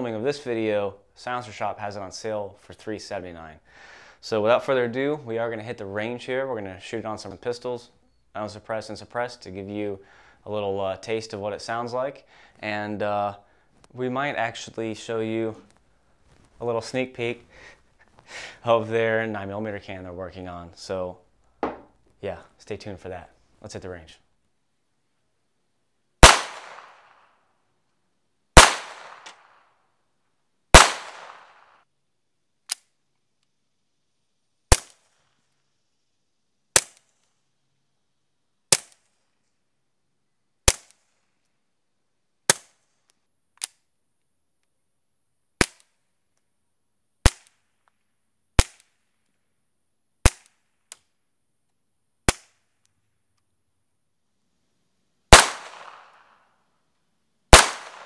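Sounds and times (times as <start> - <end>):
loud echoing pistol shots: 26.2 - 27.1, 28.6 - 29.5, 30.8 - 31.6, 55.3 - 56.2, 57.5 - 58.0
quiet suppressed pistol shots: 26.2 - 27.1, 28.6 - 29.5, 30.8 - 31.6, 55.3 - 56.2, 57.5 - 58.0.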